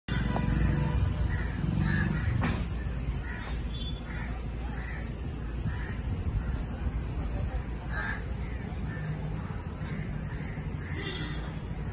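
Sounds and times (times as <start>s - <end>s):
crows cawing: 0.5s - 6.6s, 7.9s - 11.4s.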